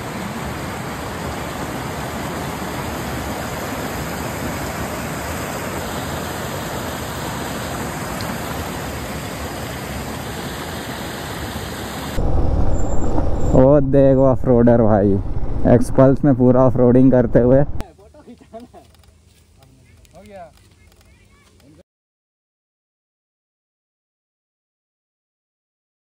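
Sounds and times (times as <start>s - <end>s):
water pouring down waterfall: 0.0s - 12.2s.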